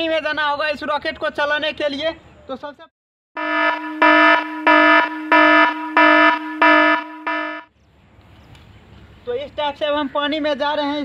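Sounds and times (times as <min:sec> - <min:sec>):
pulsing electronic alarm tone: 0:03.4 - 0:07.7.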